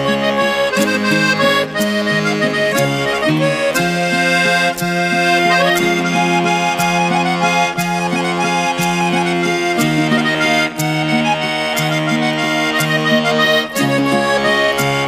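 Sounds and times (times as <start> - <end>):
instrumental music with steady beat: 0.0 - 15.0.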